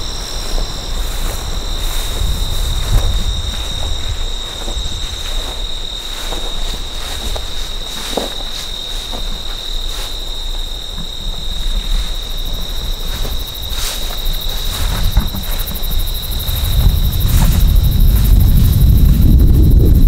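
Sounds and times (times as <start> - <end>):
insects trilling: 0.0 - 20.0
low rumble: 14.8 - 20.0.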